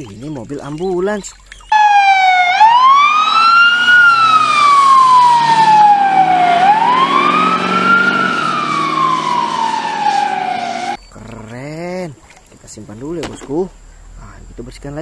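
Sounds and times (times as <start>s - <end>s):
ambulance siren wailing: 1.7s - 11.0s.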